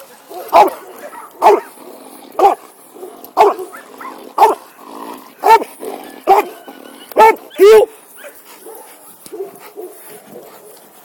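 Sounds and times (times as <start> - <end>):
dog barking: 0.3 - 1.7, 2.4 - 2.6, 3.4 - 4.6, 5.4 - 6.6, 7.2 - 10.7.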